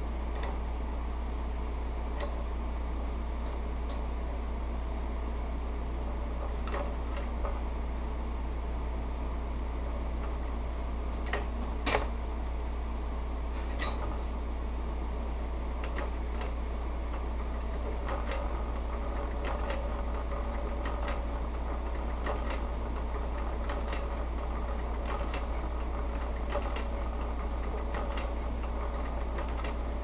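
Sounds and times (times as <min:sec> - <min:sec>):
low motor hum: 0:00.0 - 0:30.0
sewing machine stitch clicks: 0:25.0 - 0:29.9.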